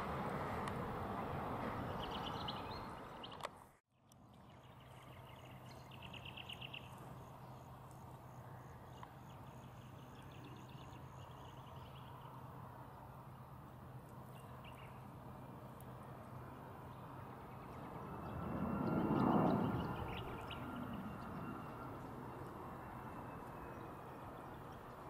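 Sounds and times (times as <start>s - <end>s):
jet airliner engine noise: 0.0s - 3.2s, 6.3s - 25.0s
birds chirping and trilling: 17.5s - 22.4s.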